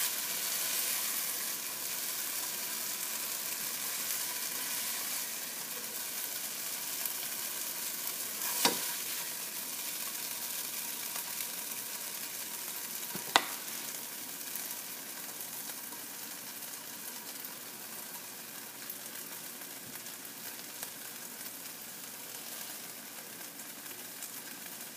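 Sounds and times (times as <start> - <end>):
chicken sizzling in a frying pan: 0.0 - 24.9
spatula stirring: 7.9 - 9.5.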